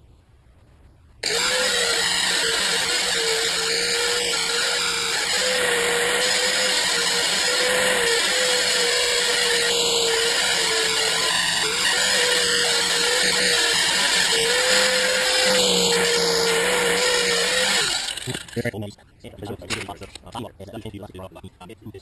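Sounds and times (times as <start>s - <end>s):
angle grinder grinding metal: 1.2s - 18.7s.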